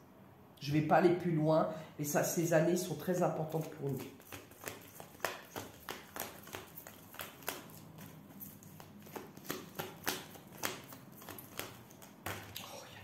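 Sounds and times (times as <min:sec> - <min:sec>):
cards being shuffled by hand: 0:02.8 - 0:12.7.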